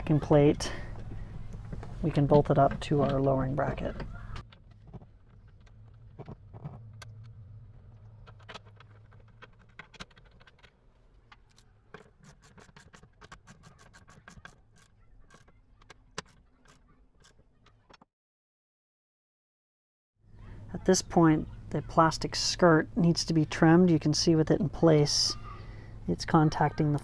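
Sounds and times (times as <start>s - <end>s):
metallic clicks and scrapes of tools: 11.3s - 18.0s.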